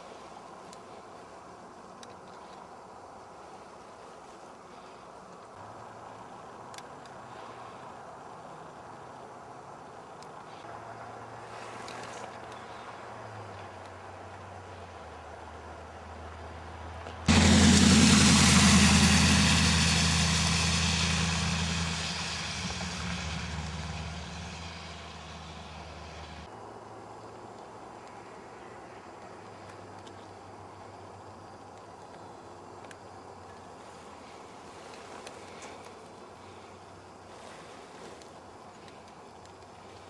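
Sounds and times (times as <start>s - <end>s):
car passing by: 10.5s - 26.5s
low hum: 17.3s - 26.5s
outdoor rushing noise: 17.3s - 26.5s
tyre hiss: 17.3s - 26.5s.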